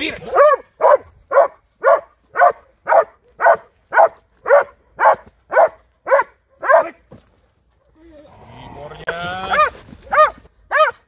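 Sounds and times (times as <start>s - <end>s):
dog barking: 0.2s - 7.0s, 9.5s - 11.0s.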